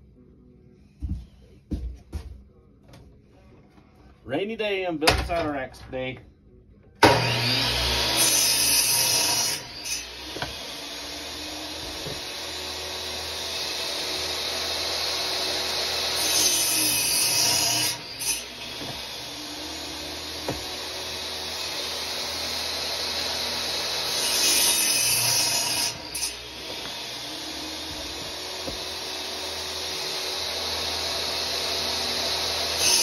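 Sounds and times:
miter saw cutting wood: 7.0s - 33.0s.

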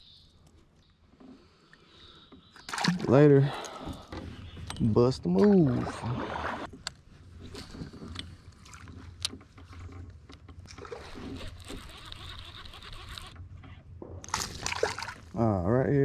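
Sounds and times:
water washing around kayak hull: 5.3s - 6.8s.

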